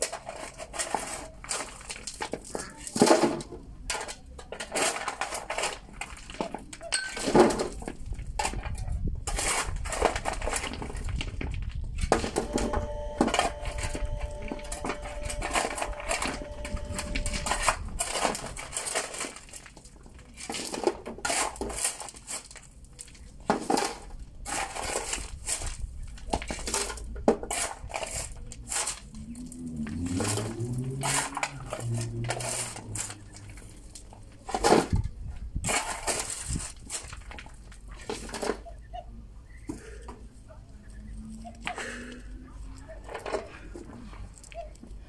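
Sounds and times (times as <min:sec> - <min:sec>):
stones clattering into wheelbarrow: 0:00.0 - 0:12.5, 0:16.6 - 0:38.7
shovel scooping crushed stone: 0:00.0 - 0:35.0, 0:35.6 - 0:38.6.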